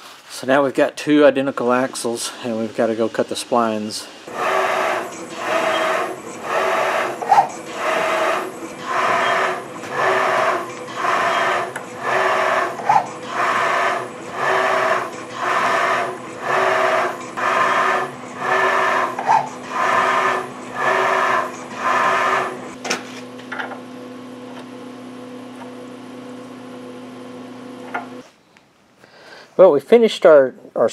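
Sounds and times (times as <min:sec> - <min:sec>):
steady machine hum: 0:00.6 - 0:28.2
machine tool grinding cuts: 0:04.1 - 0:22.8.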